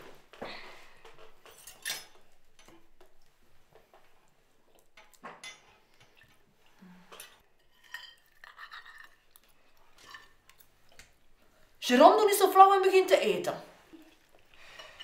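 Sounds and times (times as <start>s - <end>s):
cutlery clinking on plates: 1.4s - 3.0s, 5.0s - 6.2s, 7.1s - 9.2s.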